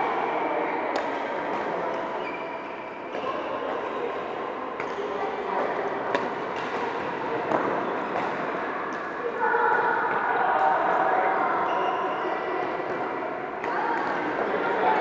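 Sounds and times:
chatter of many voices: 0:00.0 - 0:15.0
rackets hitting shuttlecocks: 0:06.1 - 0:09.1.

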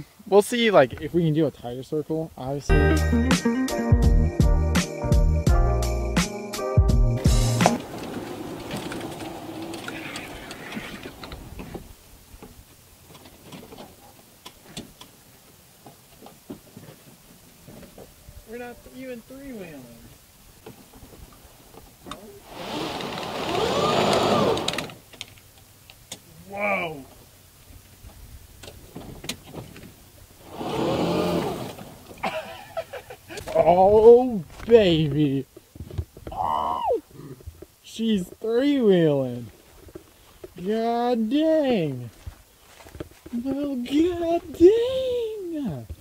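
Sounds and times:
tyres crunching: 0:07.2 - 0:18.0
wheels spinning in sand: 0:07.4 - 0:11.9, 0:22.4 - 0:25.0, 0:30.4 - 0:33.0
electric motor whine: 0:22.4 - 0:24.9.

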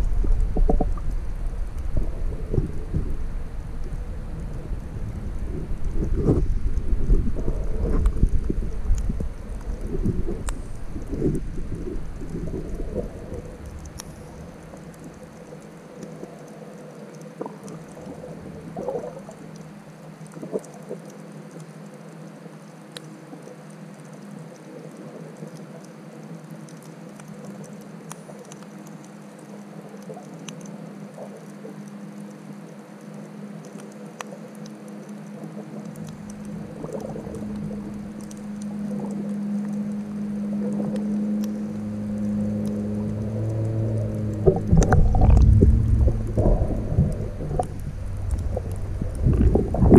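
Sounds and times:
deeper hum: 0:00.0 - 0:15.2, 0:36.3 - 0:49.9
bubbling gurgles: 0:00.0 - 0:16.5, 0:17.3 - 0:19.6, 0:35.9 - 0:49.9
faint clicks: 0:00.0 - 0:49.9
muffled underwater hiss: 0:00.0 - 0:49.9.

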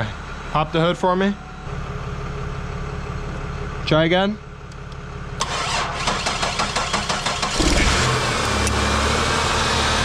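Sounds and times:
car engine idling: 0:00.0 - 0:08.8
car engine cranking: 0:05.4 - 0:09.0.

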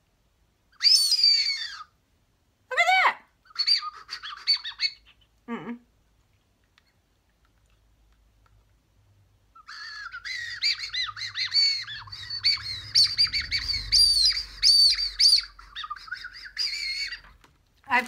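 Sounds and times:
candy whistle shrill warbling chirps: 0:00.8 - 0:02.0, 0:03.5 - 0:05.0, 0:09.6 - 0:17.3.

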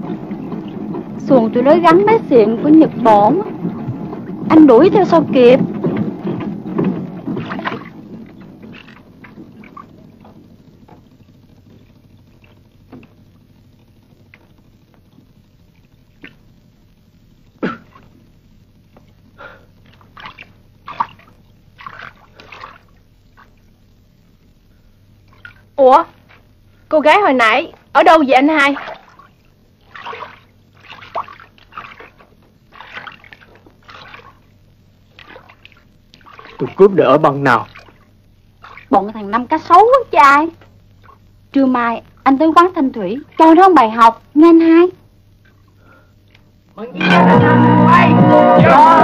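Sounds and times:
water splashing around canoe: 0:00.0 - 0:16.6, 0:19.0 - 0:24.1, 0:27.8 - 0:41.5
faint background noise: 0:00.0 - 0:49.0
knocks from wooden boat: 0:05.2 - 0:09.6.

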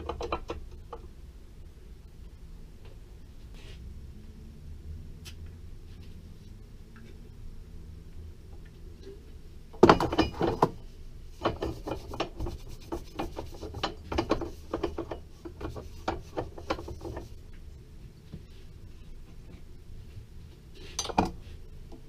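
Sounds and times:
clattering knocks of metal tools: 0:21.0 - 0:21.4.

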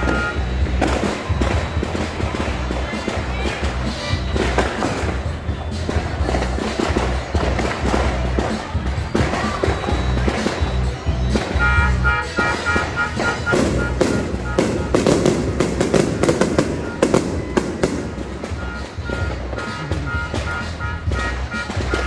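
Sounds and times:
high beeps: 0:00.0 - 0:02.9, 0:09.3 - 0:22.0
firecrackers banging: 0:00.0 - 0:22.0
music with heavy bass beat: 0:00.0 - 0:22.0.

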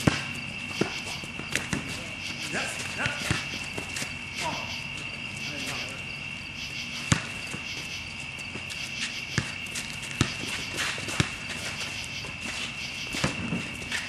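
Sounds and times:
basketball bouncing: 0:00.0 - 0:02.0, 0:02.9 - 0:04.1, 0:07.0 - 0:07.9, 0:08.6 - 0:11.5, 0:13.0 - 0:13.7
sneaker footsteps on court: 0:00.0 - 0:05.9, 0:07.0 - 0:14.0
insects chirring: 0:00.0 - 0:14.0.

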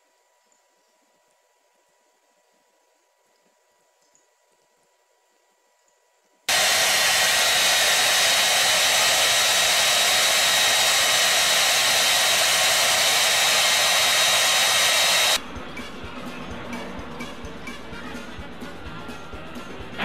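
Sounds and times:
hair dryer running: 0:06.5 - 0:15.4.

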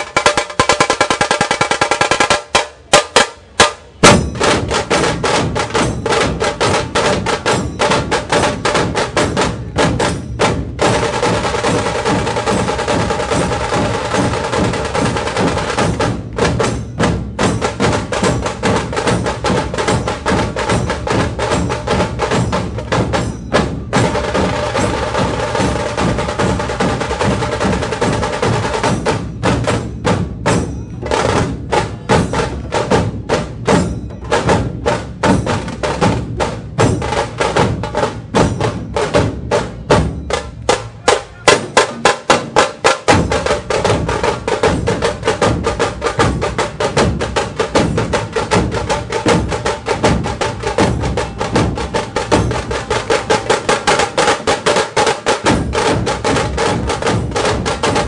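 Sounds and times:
drum ensemble playing: 0:00.0 - 0:58.0.

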